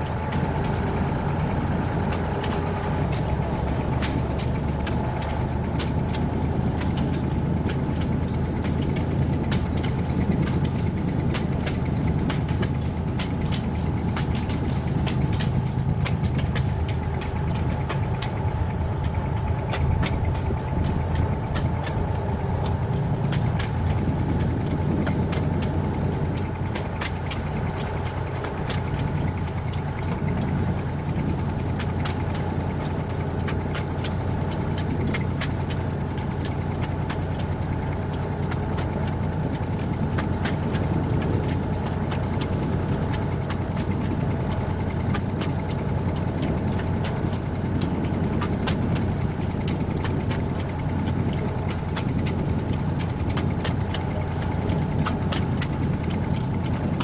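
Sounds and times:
diesel train engine drone: 0.0 - 57.0
train wheels clicking and rattling: 0.0 - 57.0.

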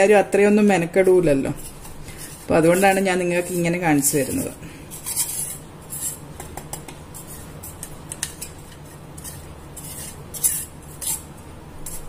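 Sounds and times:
spatula scraping steel jar: 1.5 - 6.3, 7.2 - 12.0.

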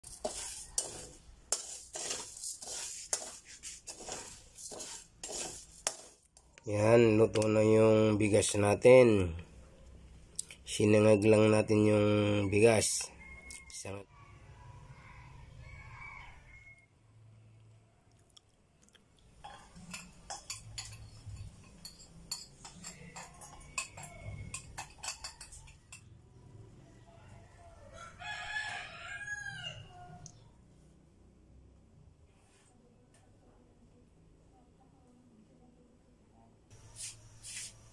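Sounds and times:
utensils clinking on metal pot: 0.0 - 6.2, 19.4 - 26.1
metal spatula scraping wok: 0.0 - 6.5, 19.4 - 26.1
rice rasping against pan: 0.0 - 6.5, 19.4 - 25.8, 36.8 - 37.9.

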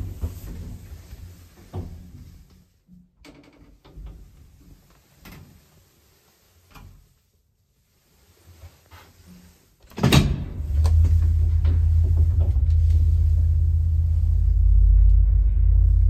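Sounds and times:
low hum: 10.4 - 16.0.

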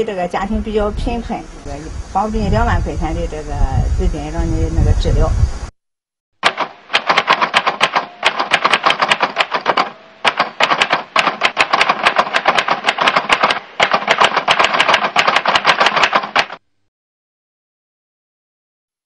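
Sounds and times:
typewriter key clicks: 6.4 - 16.6.

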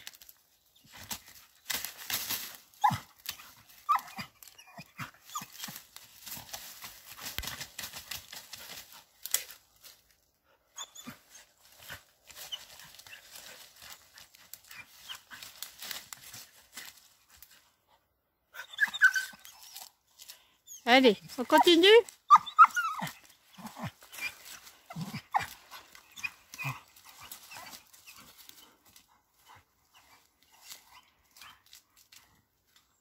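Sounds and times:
dog whining: 18.6 - 19.9, 22.3 - 28.3.

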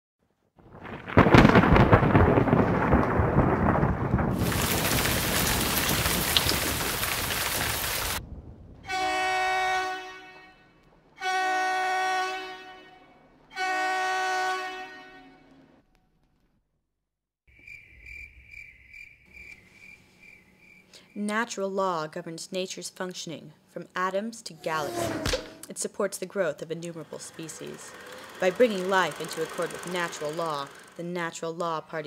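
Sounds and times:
thunder crash rumbling: 0.6 - 9.4
heavy rain: 0.7 - 8.5, 27.3 - 31.0.

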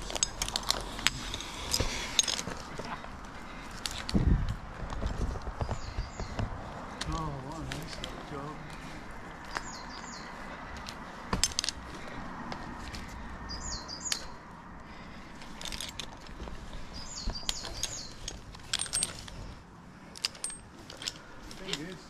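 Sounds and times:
sharp metallic clinks and knocks: 0.0 - 4.2, 9.4 - 13.1, 14.0 - 22.0
small bird chirping: 5.6 - 6.4, 9.5 - 10.4, 13.5 - 14.4, 16.8 - 18.3.

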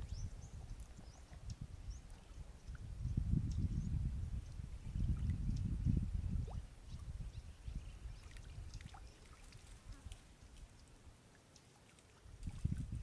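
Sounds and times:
water sloshing and dripping: 8.2 - 13.0.

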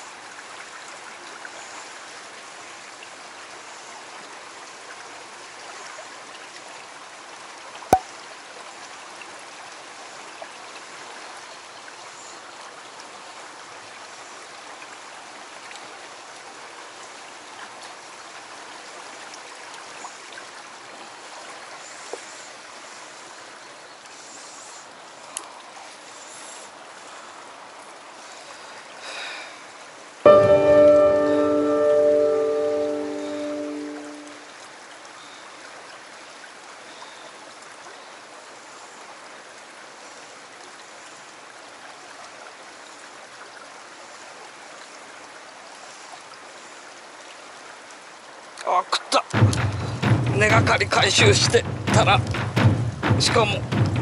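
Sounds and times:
stream rushing: 24.8 - 36.7, 41.2 - 54.0
music: 30.3 - 34.4, 49.4 - 54.0.

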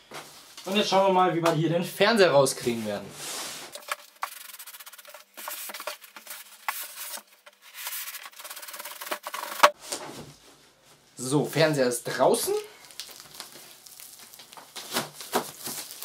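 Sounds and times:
cardboard box scraping and rustling: 3.3 - 9.8.

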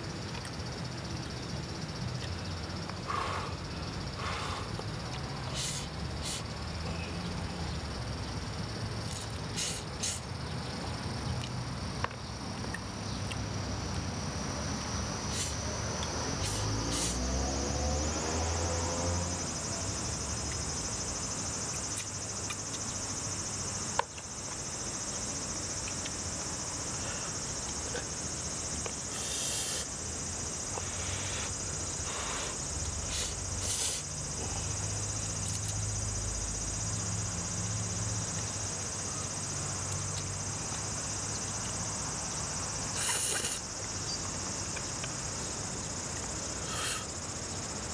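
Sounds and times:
insects trilling: 0.0 - 47.9.

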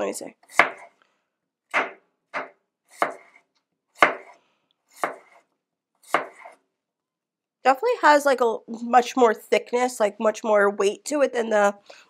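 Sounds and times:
knife chopping apple on board: 0.5 - 0.9, 1.7 - 3.4, 4.0 - 5.4, 6.0 - 6.6.

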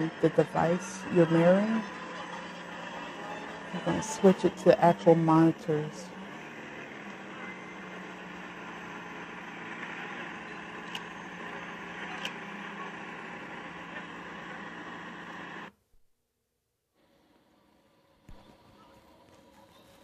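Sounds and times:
car engines running: 0.0 - 15.7
street noise: 0.0 - 15.7
sharp clicks: 10.8 - 11.1.

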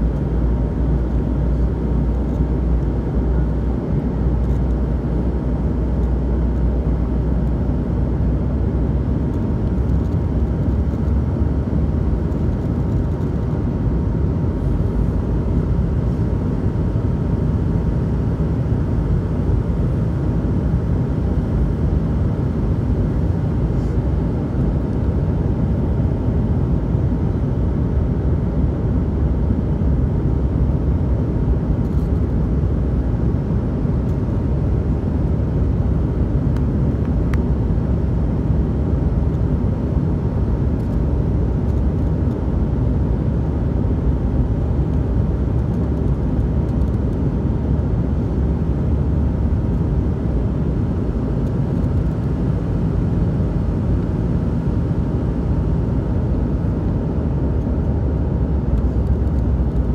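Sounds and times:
airliner cabin rumble: 0.0 - 59.9
faint steady whine: 0.0 - 59.9.

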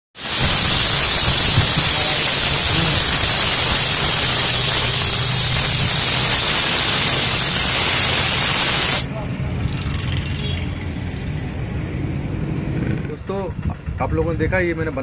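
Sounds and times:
compressed air and water blasting: 0.2 - 9.1.

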